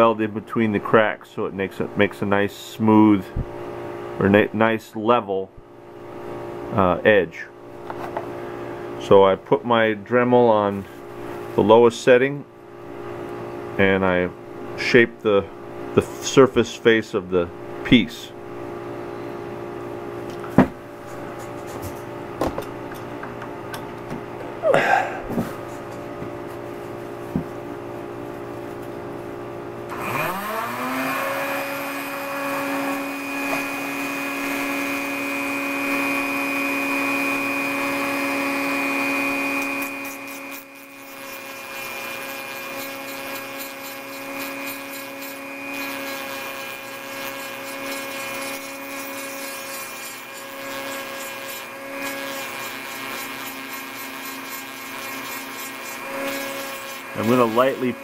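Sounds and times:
rotary tool whine: 0:29.9 - 0:58.0.

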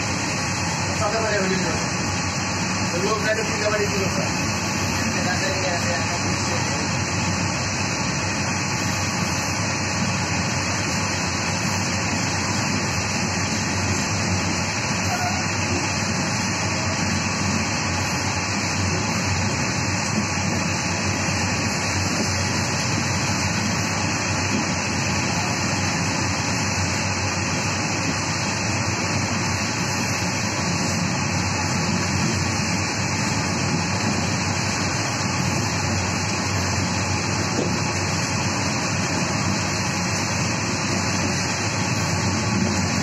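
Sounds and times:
train running rumble: 0:00.0 - 0:43.0.

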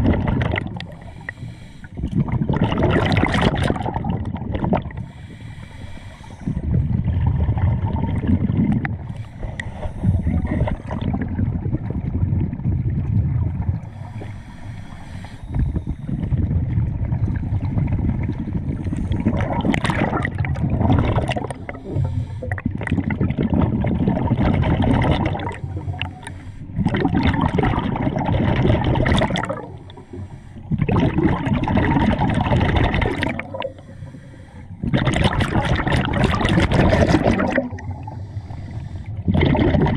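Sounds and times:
exhaled bubbles underwater: 0:00.0 - 0:39.9
hissing regulator inhalations: 0:00.8 - 0:02.0, 0:05.0 - 0:06.7, 0:09.1 - 0:11.0, 0:13.9 - 0:16.3, 0:21.5 - 0:22.6, 0:25.5 - 0:26.8, 0:29.6 - 0:30.7, 0:33.4 - 0:34.9, 0:38.0 - 0:39.3.

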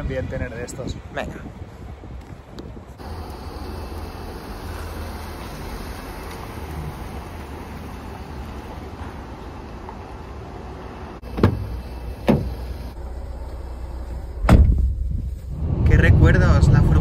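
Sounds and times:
sharp thumps: 0:11.2 - 0:12.6, 0:14.4 - 0:15.3
steady low rumble: 0:12.8 - 0:17.0.

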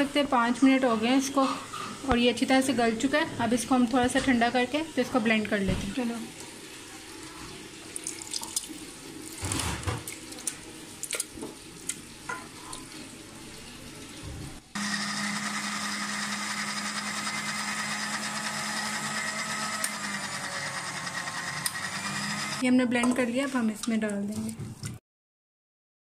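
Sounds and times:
electric blender running: 0:14.8 - 0:22.6.

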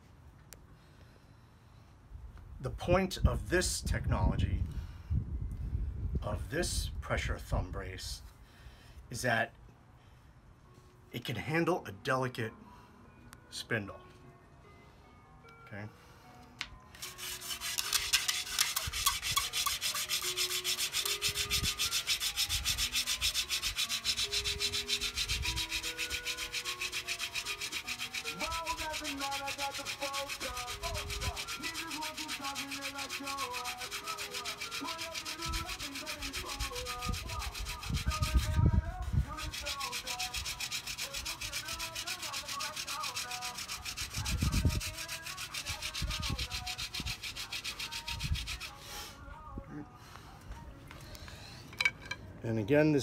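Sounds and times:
spindle rasping on wooden board: 0:17.0 - 0:48.8.

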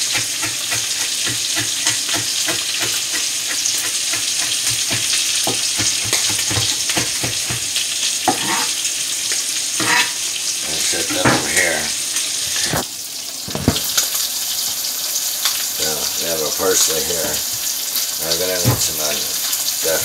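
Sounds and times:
knife chopping on cutting board: 0:00.0 - 0:08.7
steak sizzling in a frying pan: 0:00.0 - 0:20.0.

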